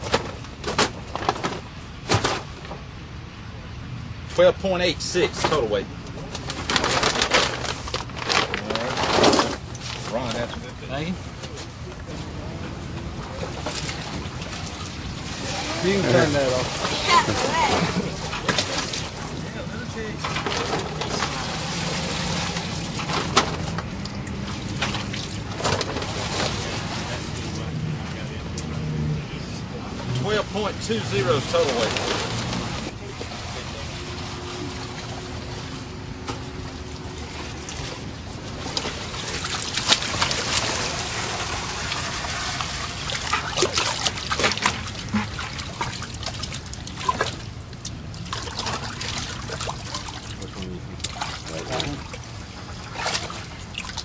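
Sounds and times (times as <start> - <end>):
water sloshing in plastic tub: 5.2 - 27.8, 30.0 - 54.0
sharp splashes or knocks: 36.2 - 47.5
water pouring into a tub: 38.7 - 47.4.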